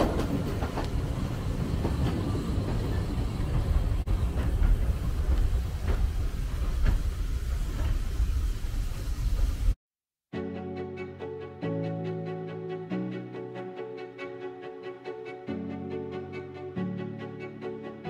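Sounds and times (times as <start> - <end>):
train carriage rumbling: 0.0 - 9.8
wheels clicking over rail joints: 0.0 - 9.8.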